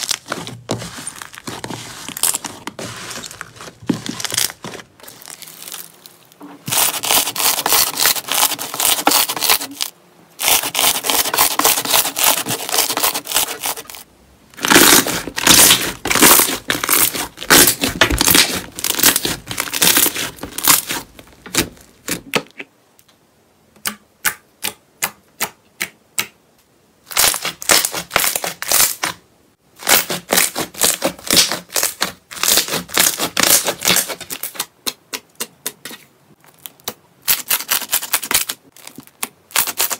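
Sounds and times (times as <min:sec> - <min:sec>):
slime crackling and popping: 0:14.6 - 0:21.7.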